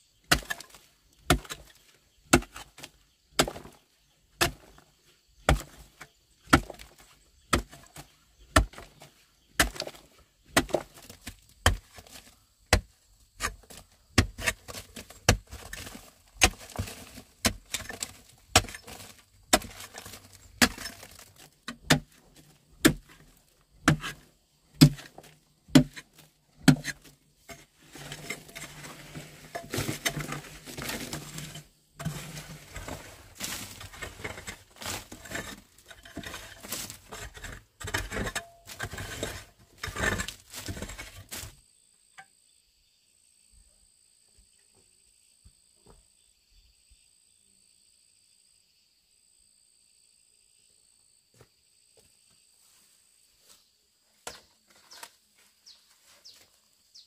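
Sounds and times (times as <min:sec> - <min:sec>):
hoe scraping soil and stones: 0:00.0 - 0:41.6, 0:54.3 - 0:57.0
hoe striking rocky bank: 0:00.3 - 0:01.7, 0:03.4 - 0:03.8, 0:05.5 - 0:05.9, 0:06.5 - 0:09.0, 0:09.6 - 0:22.2, 0:22.8 - 0:41.5
loose rock rattling down: 0:04.4 - 0:41.6.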